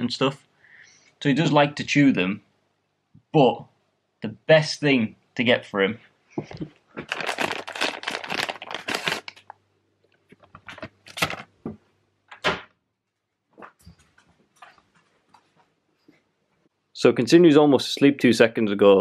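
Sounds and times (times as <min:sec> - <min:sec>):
rustling and handling noise: 0:06.0 - 0:12.4, 0:13.0 - 0:16.7.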